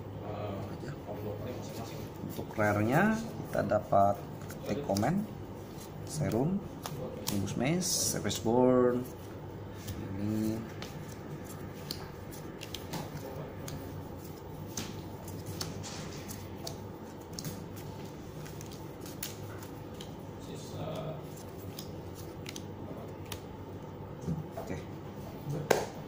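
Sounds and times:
steady low hum: 0.0 - 26.0
trading cards clicking and snapping: 6.2 - 7.5, 10.8 - 14.0, 14.7 - 17.7, 18.4 - 20.2, 20.8 - 23.5.

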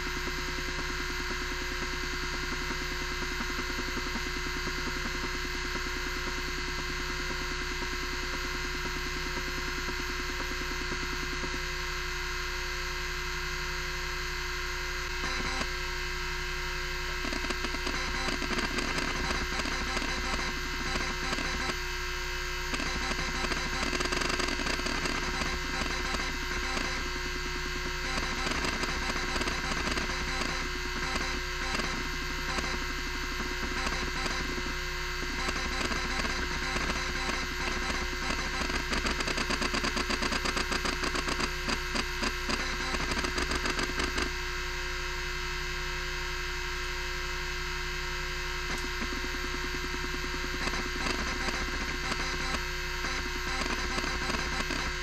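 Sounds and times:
hard drive motor whining: 0.0 - 55.0
hard drive heads chattering clicks: 17.2 - 21.8, 22.7 - 44.3, 48.7 - 55.0.

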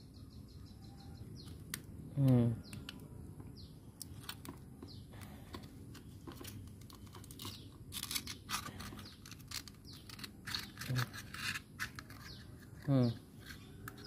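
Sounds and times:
scissors cutting shell: 5.9 - 14.0.

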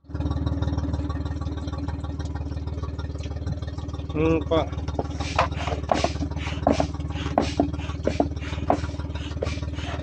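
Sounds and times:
engine hum: 0.0 - 10.0
foot pump puffs of air: 5.1 - 10.0.

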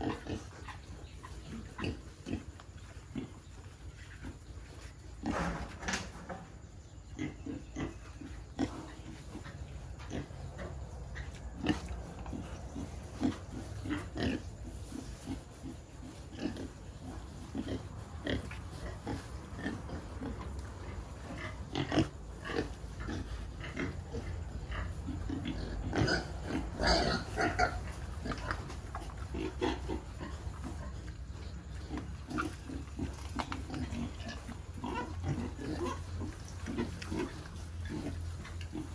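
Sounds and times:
pigs grunting: 0.0 - 38.9
pig calls: 17.5 - 38.9.

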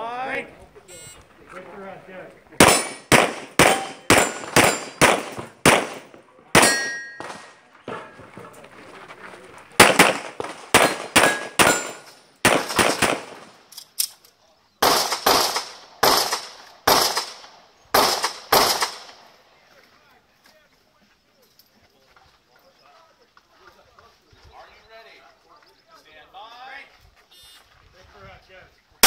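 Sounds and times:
steel target ringing: 2.6 - 5.2, 6.6 - 8.2, 10.8 - 12.2
rapid pistol fire: 2.6 - 7.6, 9.8 - 13.5, 14.8 - 19.2.

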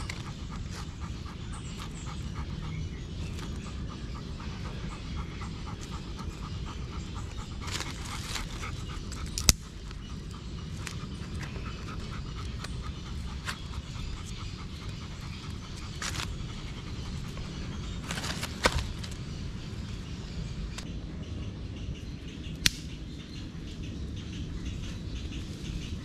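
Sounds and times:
dog panting: 0.0 - 19.9
sharp crack: 22.6 - 23.0.

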